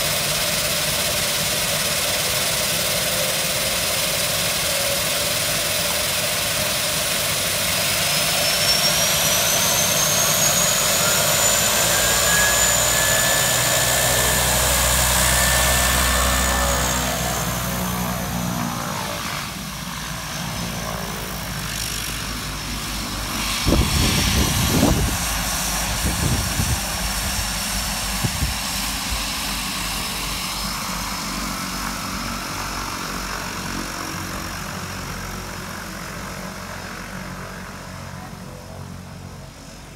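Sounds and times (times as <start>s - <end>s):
turboprop turbine whine: 0.0s - 39.9s.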